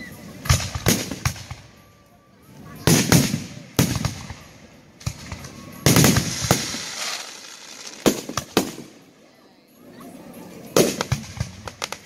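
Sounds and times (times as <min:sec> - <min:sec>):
firework shells booming: 0:02.9 - 0:09.0.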